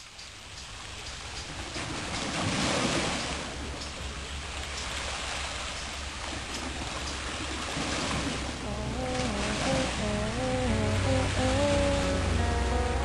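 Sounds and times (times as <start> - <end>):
small waves on rocky shore: 0.9 - 10.0
steady low rumble: 8.6 - 13.0.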